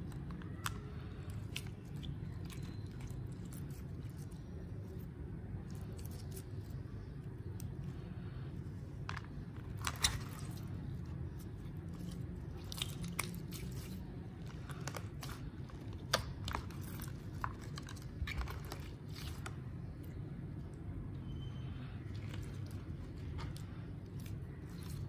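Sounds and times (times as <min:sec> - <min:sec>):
steady low background noise: 0:00.0 - 0:25.0
slime wet clicks and crackles: 0:09.7 - 0:20.2.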